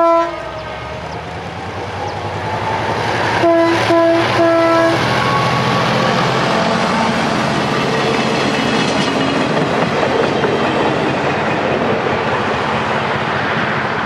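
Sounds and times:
train air horn blasts: 0:00.0 - 0:00.6, 0:03.4 - 0:05.4
diesel locomotive engine: 0:00.0 - 0:14.0.

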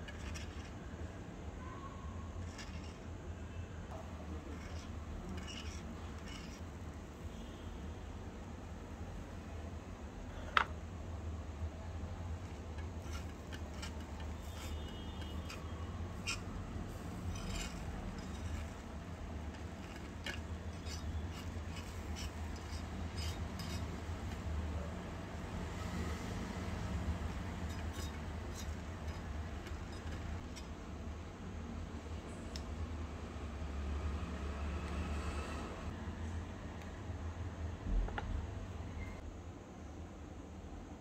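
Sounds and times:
spoon scraping a pan: 0:00.0 - 0:01.0, 0:02.4 - 0:03.1, 0:04.2 - 0:07.6, 0:12.2 - 0:30.8
low background hum: 0:00.0 - 0:34.9.

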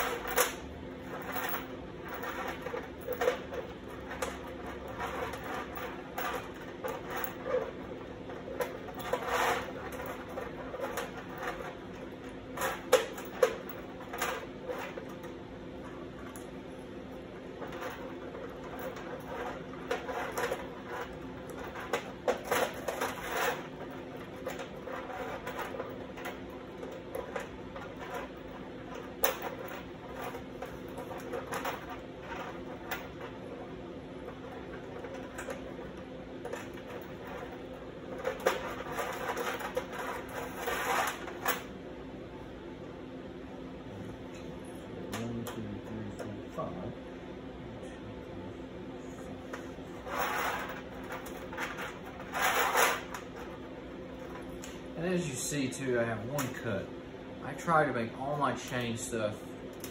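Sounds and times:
chain clinking on sheet metal: 0:00.0 - 0:16.4, 0:17.4 - 0:41.7, 0:50.0 - 0:53.6.

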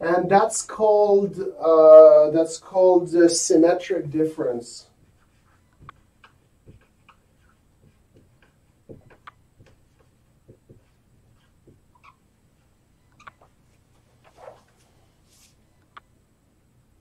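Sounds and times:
marker writing on whiteboard: 0:04.9 - 0:13.7.

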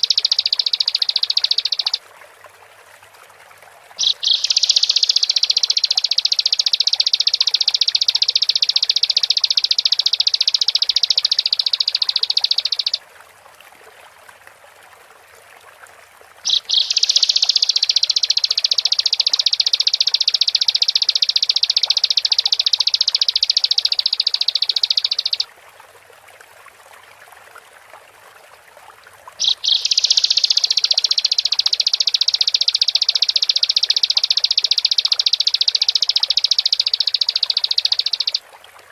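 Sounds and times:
bird singing rapid trills: 0:00.0 - 0:02.0, 0:04.0 - 0:13.0, 0:16.5 - 0:25.4, 0:29.4 - 0:38.4.

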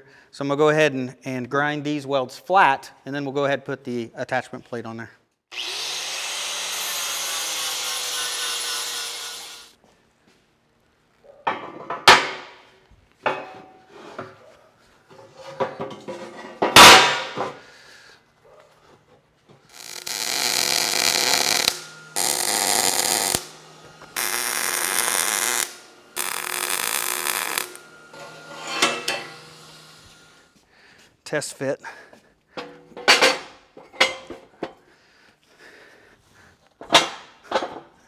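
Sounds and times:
welding crackling hiss: 0:06.0 - 0:09.8, 0:19.7 - 0:30.5
steel plate clanking: 0:20.2 - 0:29.5.

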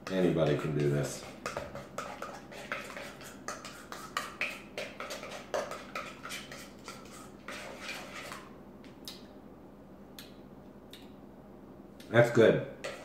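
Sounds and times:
spoon scraping metal bowl: 0:00.1 - 0:08.5, 0:12.8 - 0:13.0.

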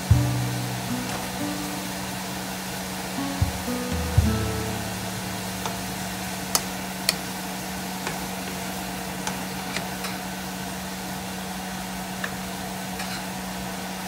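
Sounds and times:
low hum: 0:00.0 - 0:08.0
oil sizzling: 0:00.0 - 0:09.1.

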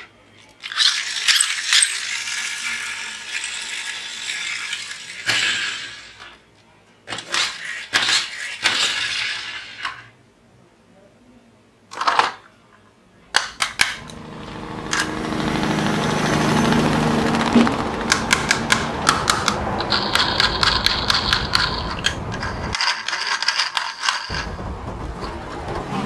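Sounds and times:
plastic toy clatter: 0:00.4 - 0:06.3, 0:18.1 - 0:24.5
toy wheels whirring and clicking: 0:00.6 - 0:06.4, 0:07.1 - 0:10.1, 0:17.4 - 0:24.4.

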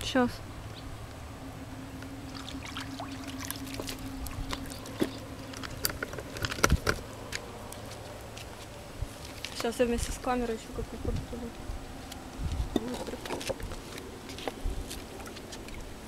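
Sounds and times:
steady low hum: 0:00.0 - 0:16.0
water lapping at rocks: 0:02.2 - 0:06.8, 0:12.7 - 0:16.0
footsteps on rocks: 0:03.8 - 0:10.3, 0:12.0 - 0:15.7.

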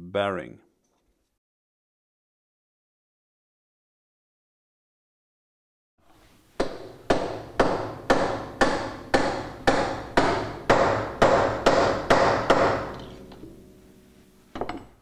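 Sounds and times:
hammer striking metal drift ringing: 0:06.6 - 0:14.9.

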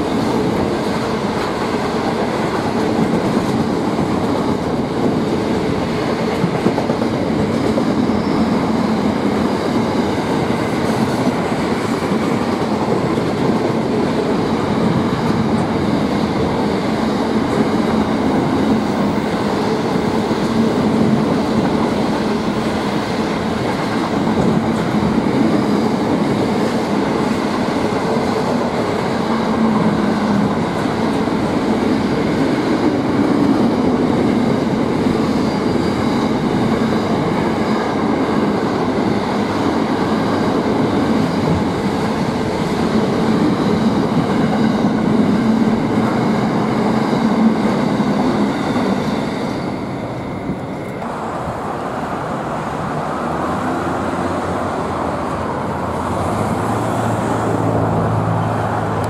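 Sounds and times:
train wagons rolling on rails: 0:00.0 - 0:59.0
road traffic hum: 0:50.1 - 0:59.0.

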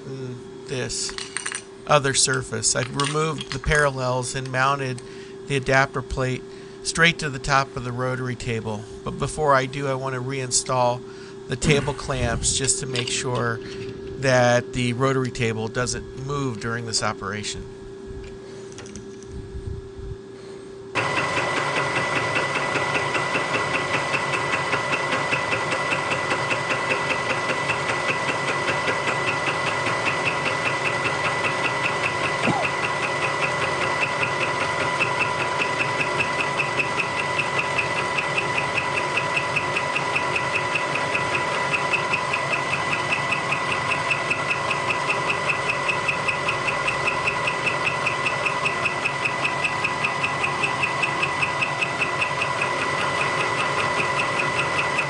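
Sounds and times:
milling machine running: 0:20.9 - 0:55.0.

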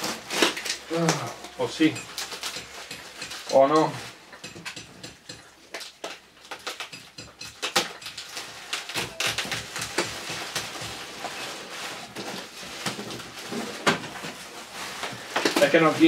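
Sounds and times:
plastic bag rustling: 0:00.0 - 0:04.3, 0:07.6 - 0:16.0.

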